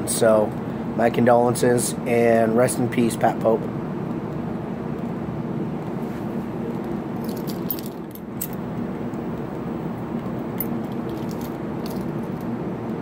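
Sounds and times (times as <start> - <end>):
steady low hum: 0.0 - 13.0
keys jangling on keyring: 7.2 - 8.6, 10.6 - 12.5.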